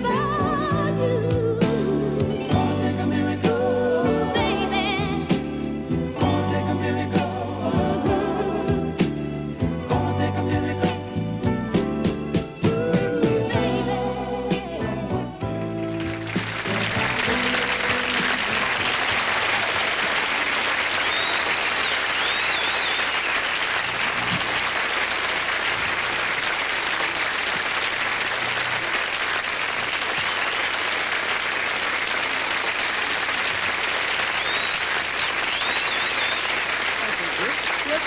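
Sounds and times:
audience applauding: 15.6s - 38.0s
high whistles: 20.4s - 23.8s, 34.2s - 36.7s.

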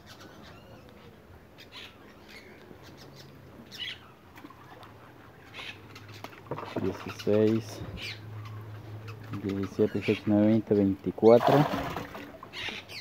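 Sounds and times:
faint bird chirps: 0.0s - 10.3s
fish splashing into water: 11.4s - 12.8s.

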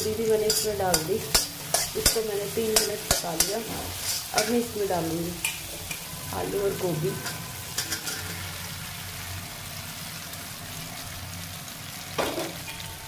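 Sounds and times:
vegetables sizzling in hot oil: 0.0s - 13.0s
metal spatula clicking on pan: 0.5s - 3.6s
spatula scraping pan: 0.5s - 4.6s, 7.1s - 8.6s.

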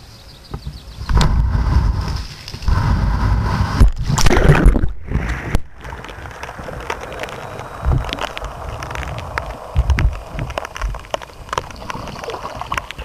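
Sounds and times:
water gurgling and sloshing: 1.2s - 13.0s
water drips and splashes: 3.9s - 13.0s.

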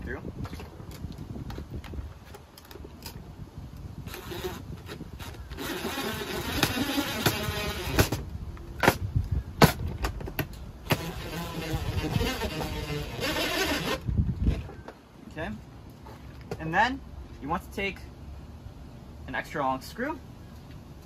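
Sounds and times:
cordless drill driving screw: 4.1s - 8.2s, 10.9s - 14.0s.

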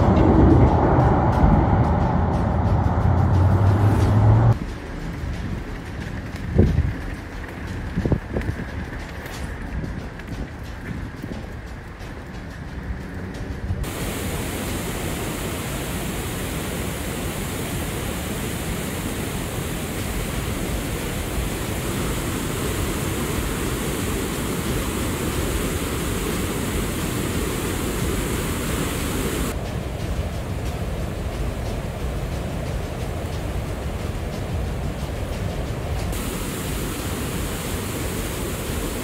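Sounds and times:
river rushing over a weir: 13.8s - 39.0s.

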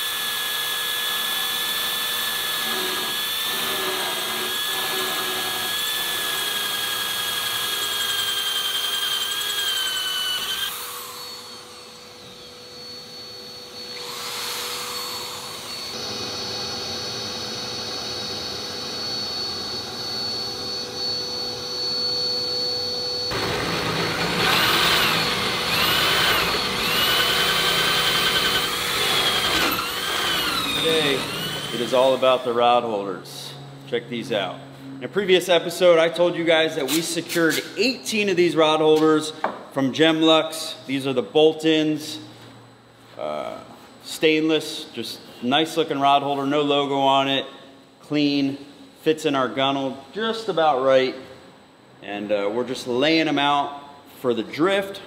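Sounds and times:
power drill motor whine: 0.0s - 32.5s.

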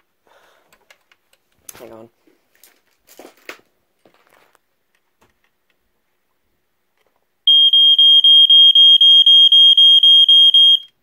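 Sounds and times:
smoke detector alarm pulsing: 7.5s - 11.0s.

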